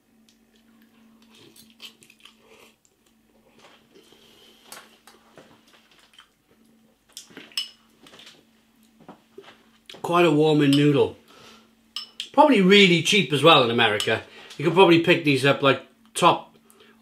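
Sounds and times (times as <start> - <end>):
fork clinking against bowl: 12.0 - 12.3.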